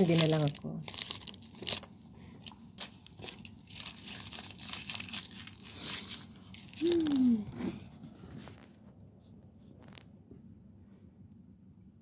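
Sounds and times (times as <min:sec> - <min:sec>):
candy wrapper crinkling: 0:00.0 - 0:07.6.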